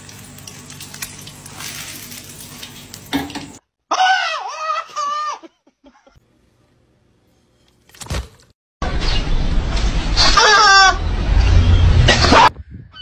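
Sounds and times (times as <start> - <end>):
egg sizzling in a pan: 0.0 - 3.6.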